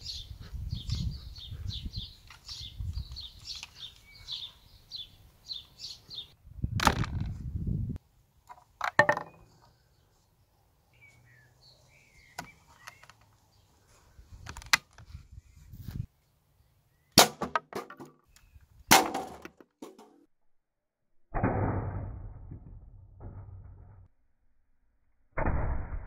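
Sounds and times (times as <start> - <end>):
songbird chirping: 0.0 - 6.4, 8.4 - 14.4, 15.4 - 17.2, 18.1 - 18.9.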